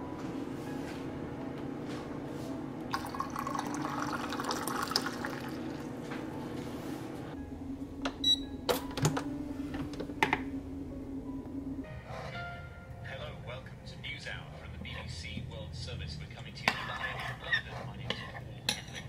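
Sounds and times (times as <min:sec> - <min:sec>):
water pouring into a mug: 0:02.9 - 0:05.9.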